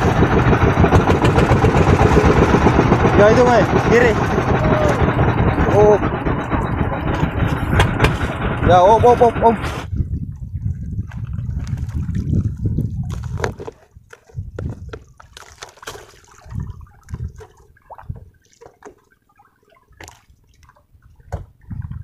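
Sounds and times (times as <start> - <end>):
low rumble: 0.0 - 13.6
water sloshing against boat: 0.0 - 22.0.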